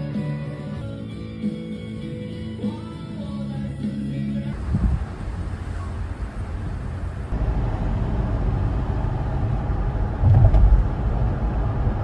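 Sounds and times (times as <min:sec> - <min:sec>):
car road and engine rumble: 0:04.4 - 0:12.0.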